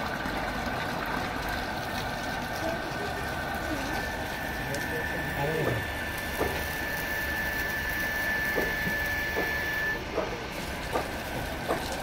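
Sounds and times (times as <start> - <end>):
water pump whirring and humming: 0.0 - 12.0
high steady whine: 3.9 - 11.4.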